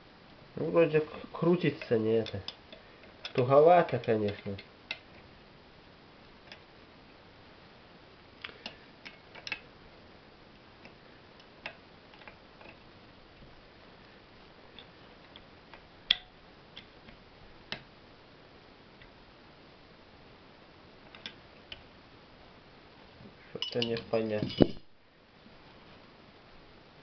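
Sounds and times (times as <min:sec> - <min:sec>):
faint steady hiss: 0:00.0 - 0:27.0
light clicks and taps on metal: 0:01.6 - 0:05.3, 0:08.4 - 0:09.6, 0:10.8 - 0:12.8, 0:14.7 - 0:17.9, 0:21.0 - 0:21.9, 0:23.6 - 0:24.8.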